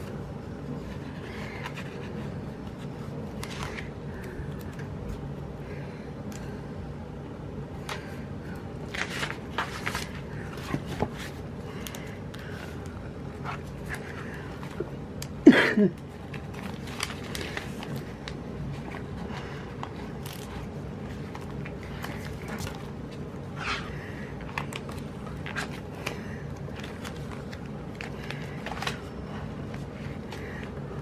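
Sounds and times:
steady low hum: 0.0 - 31.0
paper and sticker rustling: 8.9 - 14.8.

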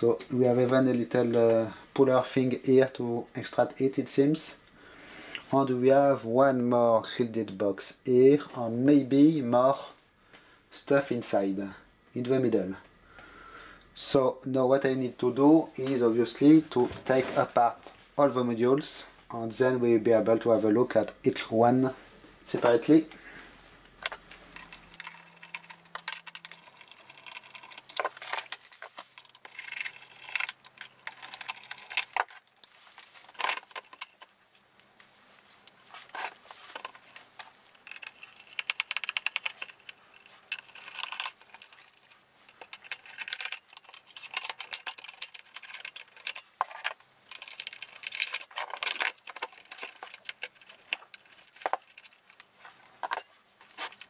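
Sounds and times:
metal parts clinking and rattling: 24.0 - 35.0, 36.0 - 54.0.

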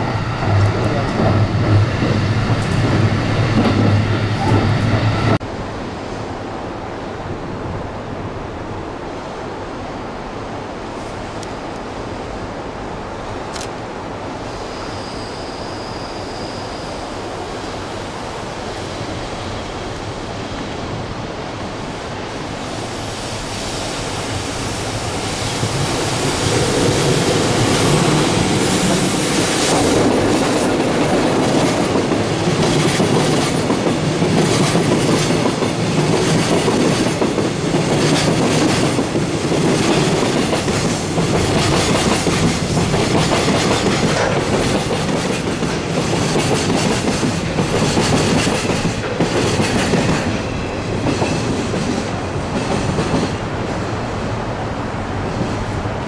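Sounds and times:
train rumble: 0.0 - 9.5, 10.2 - 56.0.

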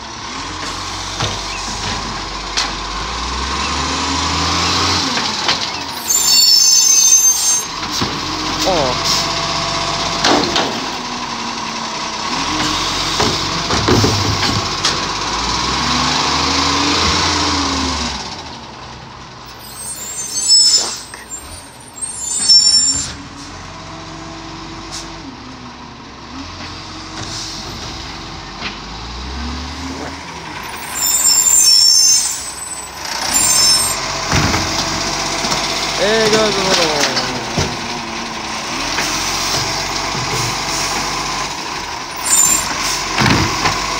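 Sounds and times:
diesel engine revving: 0.0 - 43.9
air-brake hisses: 19.6 - 21.3, 30.7 - 34.0.

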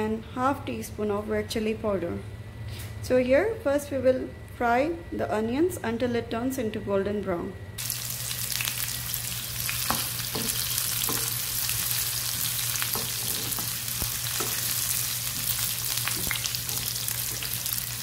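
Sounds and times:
onions sizzling in oil: 7.8 - 18.0.

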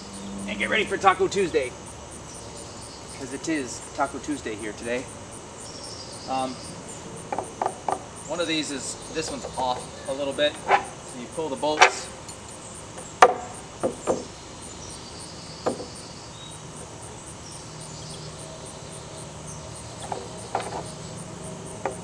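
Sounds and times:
insects chirping: 0.0 - 22.0
wood and bolts knocking: 7.3 - 8.0, 13.0 - 14.3, 15.6 - 15.9.

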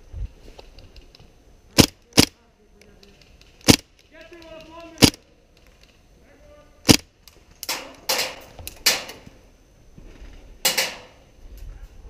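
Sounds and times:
airsoft gun shots: 1.8 - 2.3, 3.6 - 3.9, 5.0 - 5.2, 6.8 - 7.1.

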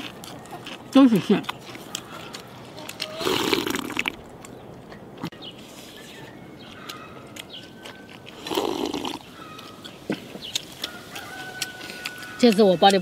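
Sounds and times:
quiet chewing: 0.0 - 13.0
slurping porridge: 3.2 - 4.1, 8.3 - 9.3.

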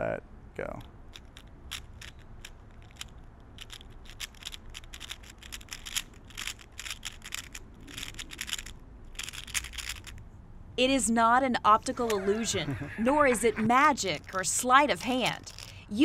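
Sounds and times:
puzzle cube plastic clicks: 1.1 - 10.2, 14.1 - 15.8.

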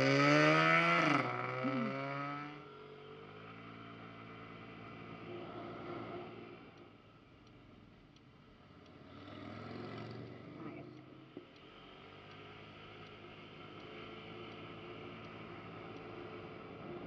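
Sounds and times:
faint ticking: 6.7 - 17.0.

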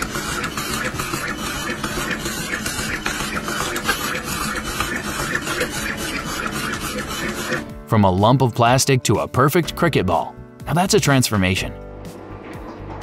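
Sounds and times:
small motor whirring: 0.0 - 7.6.

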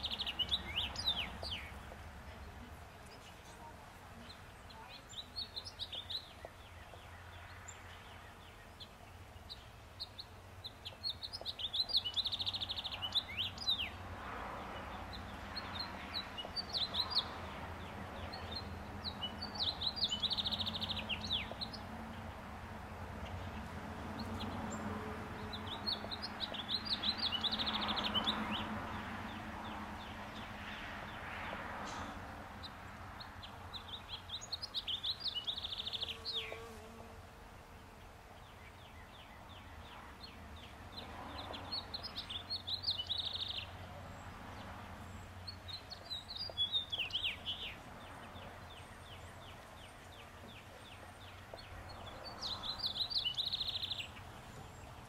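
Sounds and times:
songbird singing chattering phrases: 0.0 - 14.0, 14.7 - 55.0
honey bees humming: 34.5 - 38.0.

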